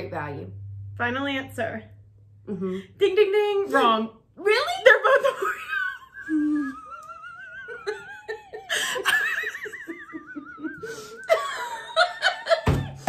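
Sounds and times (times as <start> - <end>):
women laughing: 5.0 - 13.0.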